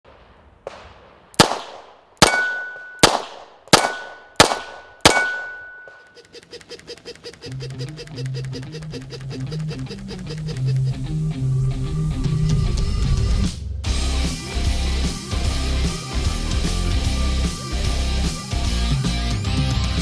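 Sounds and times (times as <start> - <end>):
revolver gunshots: 0.1 - 6.1
high ring: 2.3 - 3.0, 3.9 - 6.2
toy ducks clicking on treadmill: 6.1 - 11.0.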